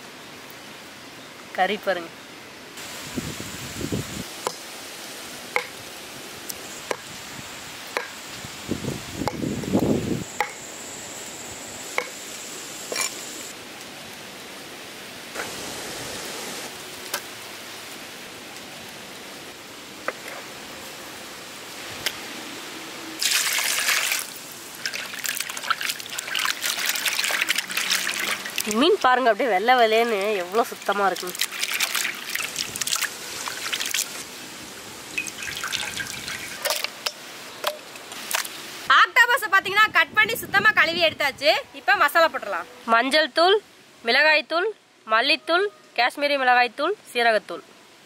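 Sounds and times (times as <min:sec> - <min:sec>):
water splashing: 0:23.2 - 0:29.1, 0:30.1 - 0:34.3, 0:35.1 - 0:37.0
water trickling and dripping: 0:23.2 - 0:29.2, 0:29.9 - 0:34.2, 0:35.0 - 0:38.5.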